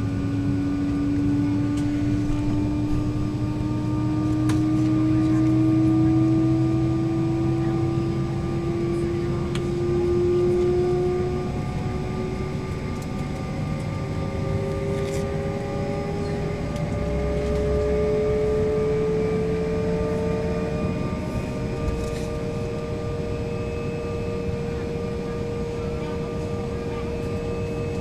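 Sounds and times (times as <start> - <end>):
jet engine whine: 0.0 - 28.0
low even rumble: 1.8 - 4.4.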